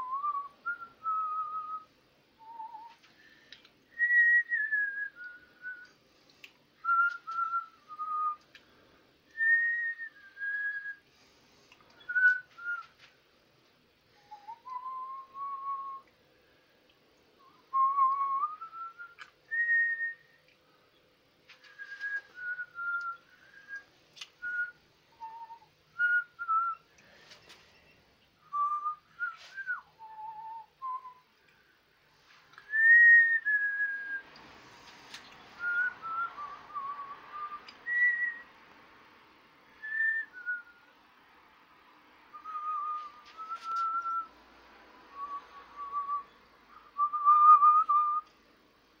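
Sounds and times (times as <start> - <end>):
person whistling a tune: 0.0 - 3.1, 3.9 - 5.9, 6.8 - 8.4, 9.3 - 11.0, 12.0 - 13.0, 14.2 - 16.1, 17.4 - 20.4, 21.6 - 26.8, 28.4 - 31.3, 32.6 - 34.2, 35.6 - 38.5, 39.8 - 40.8, 42.3 - 44.3, 45.1 - 48.3.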